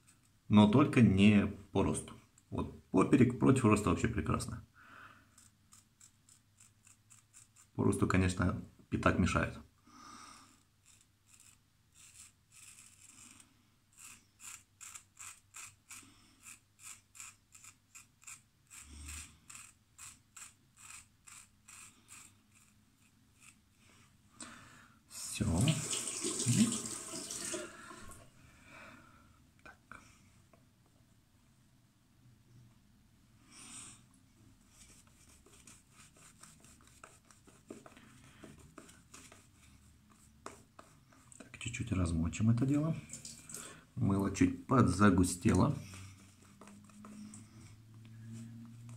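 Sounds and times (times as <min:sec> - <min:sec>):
razor scratching stubble: 0:05.3 - 0:07.8, 0:10.8 - 0:23.7, 0:34.7 - 0:38.0
shaving brush rubbing lather: 0:05.4 - 0:07.8, 0:10.8 - 0:23.9, 0:34.7 - 0:41.4, 0:44.8 - 0:47.5.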